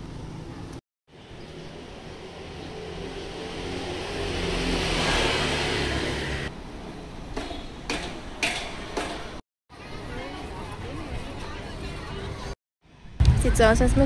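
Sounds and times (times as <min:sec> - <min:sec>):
motor vehicle passing: 0:01.3 - 0:07.2.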